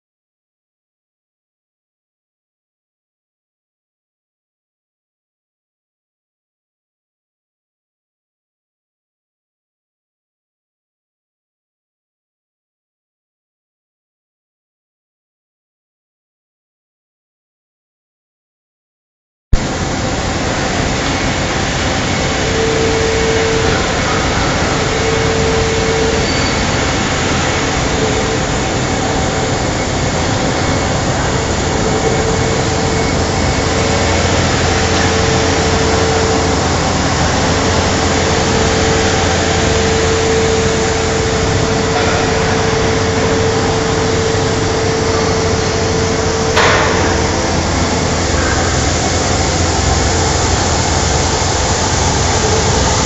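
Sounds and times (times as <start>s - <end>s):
industrial machine hum and whine: 19.5s - 53.0s.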